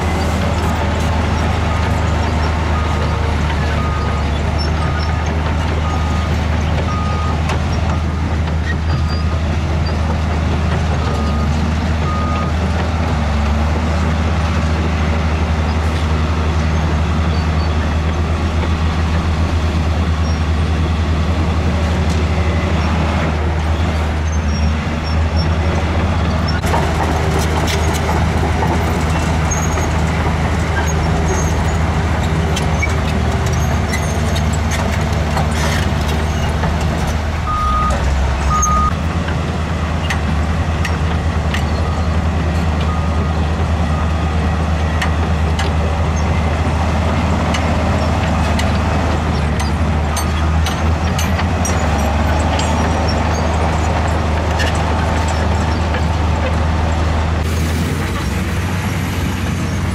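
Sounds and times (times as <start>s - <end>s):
heavy diesel engines running: 0.0s - 59.9s
reversing alarm beeping: 37.5s - 39.0s.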